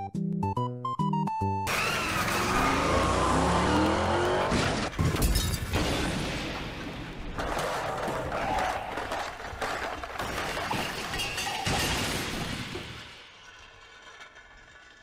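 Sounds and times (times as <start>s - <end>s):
cartoon rush with sliding pitches: 1.7s - 5.0s
loud cartoon crash: 1.7s - 13.2s.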